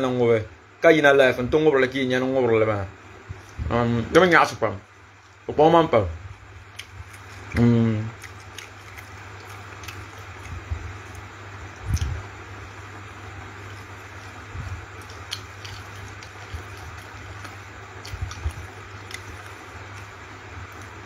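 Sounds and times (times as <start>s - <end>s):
low hum and hiss: 0.0s - 21.0s.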